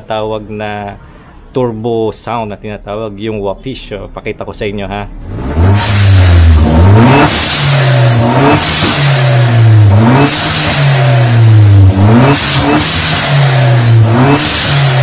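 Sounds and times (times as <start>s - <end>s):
car engine revving: 5.2s - 15.0s.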